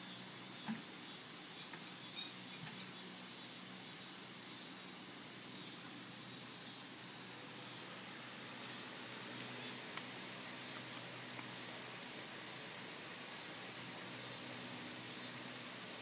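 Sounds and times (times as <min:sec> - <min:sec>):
faint high chirping call: 0:00.0 - 0:04.8
steady hiss: 0:00.0 - 0:16.0.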